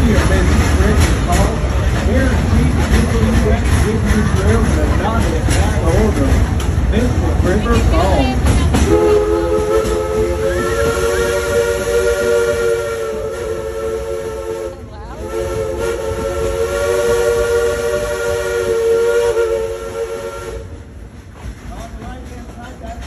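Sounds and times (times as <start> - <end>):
steam locomotive whistle: 8.8 - 20.8.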